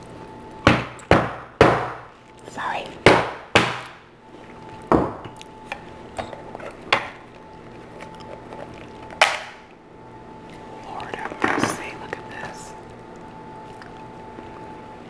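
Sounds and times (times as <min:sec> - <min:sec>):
faint steady hum: 0:00.0 - 0:15.0
hammer knocking on hard shell: 0:00.7 - 0:02.0.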